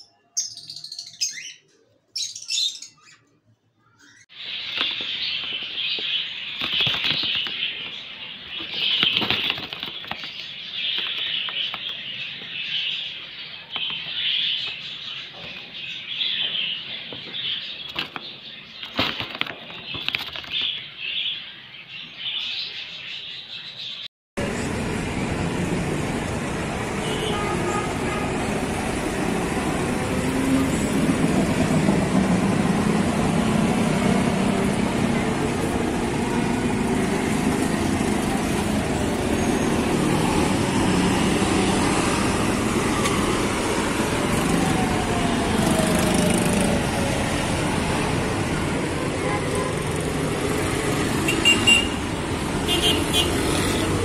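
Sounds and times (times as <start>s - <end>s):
wings fluttering: 4.4s - 12.1s, 17.8s - 20.8s.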